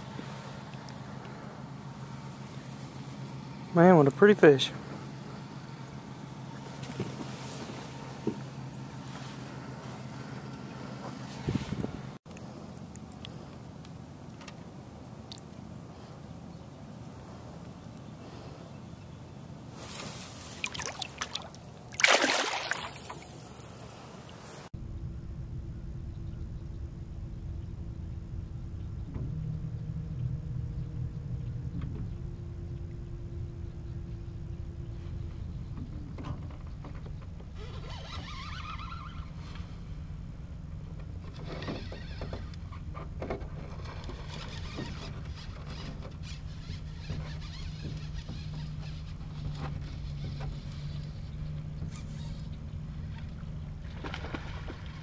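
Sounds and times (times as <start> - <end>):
steady low hum: 0.0 - 55.0
water trickling and sloshing: 19.8 - 24.7, 43.4 - 55.0
fish splashing in water: 20.5 - 23.9, 53.0 - 55.0.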